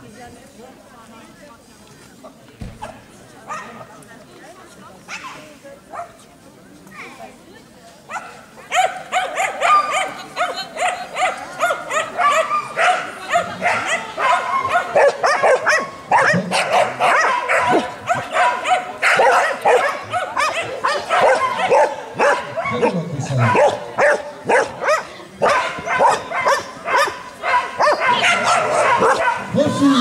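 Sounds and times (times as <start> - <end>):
dog barking rapidly: 8.1 - 29.8.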